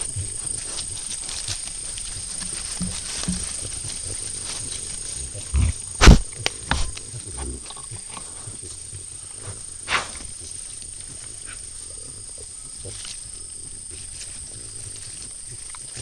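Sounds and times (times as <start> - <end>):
animal rustling against camera: 0.0 - 11.5
sharp knock: 6.0 - 6.9.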